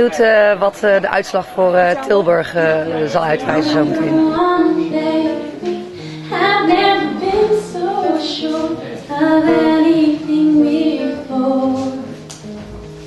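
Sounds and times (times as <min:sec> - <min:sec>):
classical guitar: 0:02.8 - 0:13.0
woman singing slow song: 0:03.4 - 0:12.2.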